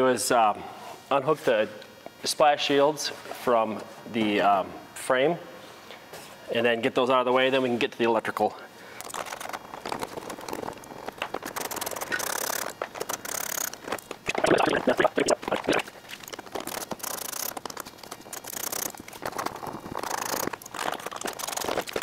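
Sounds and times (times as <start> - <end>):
plastic fasteners clicking and scraping: 9.0 - 14.2, 16.1 - 22.0.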